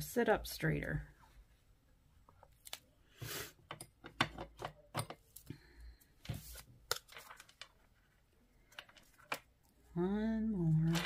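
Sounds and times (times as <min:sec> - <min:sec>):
paper rustling: 0:06.2 - 0:09.5, 0:10.7 - 0:11.0.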